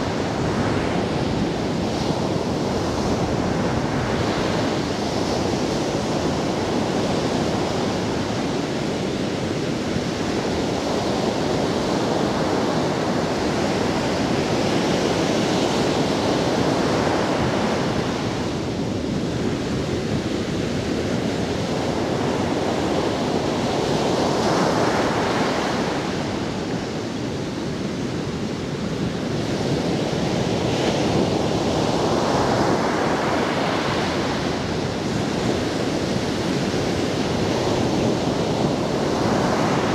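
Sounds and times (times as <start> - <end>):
surf breaking on beach: 30.3 - 39.9.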